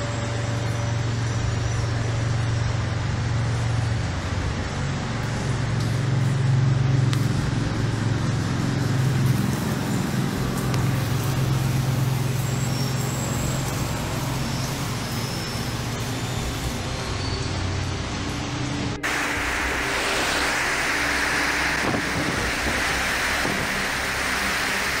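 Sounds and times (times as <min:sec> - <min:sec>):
heavy low rumble: 0:15.9 - 0:25.0
strong wind rushing: 0:19.0 - 0:25.0.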